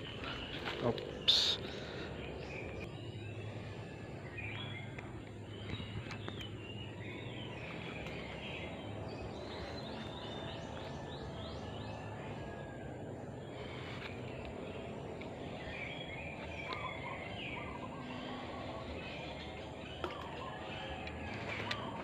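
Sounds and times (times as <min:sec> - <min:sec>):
wild birds chirping: 0:00.0 - 0:22.0.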